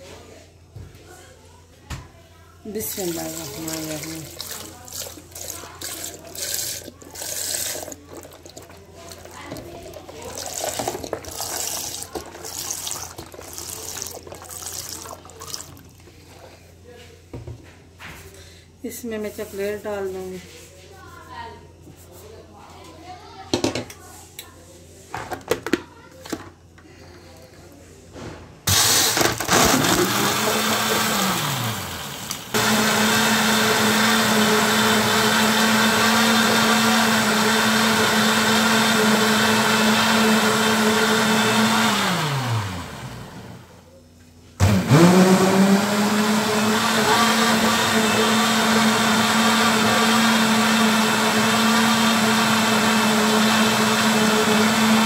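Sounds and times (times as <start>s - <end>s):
blender motor whirring: 2.8s - 15.8s, 28.7s - 43.7s, 44.6s - 55.0s.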